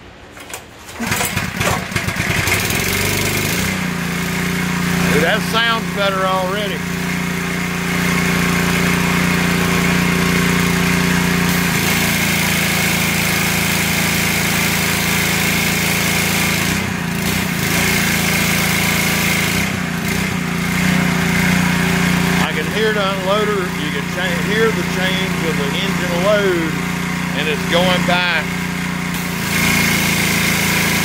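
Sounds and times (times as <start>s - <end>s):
pressure washer engine running: 1.0s - 31.0s
high-pressure water jet hissing: 29.2s - 31.0s.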